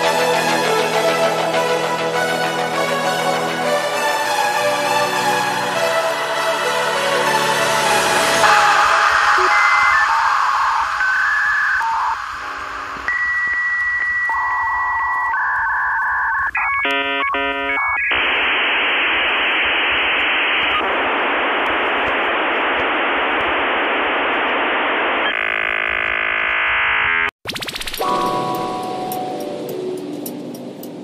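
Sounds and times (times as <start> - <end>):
static hiss: 7.8 - 30.9
electronic beeps: 8.4 - 18.6
switching tones: 8.4 - 31.0.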